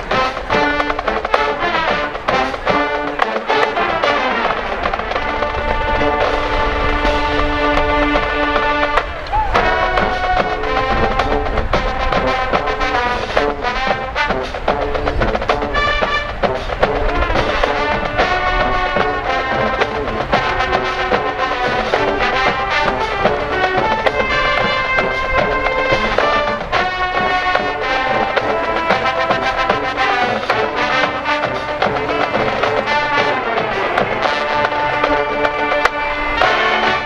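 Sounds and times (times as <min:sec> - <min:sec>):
brass playing held notes: 0:00.0 - 0:37.0
steady drum strokes: 0:00.0 - 0:37.0.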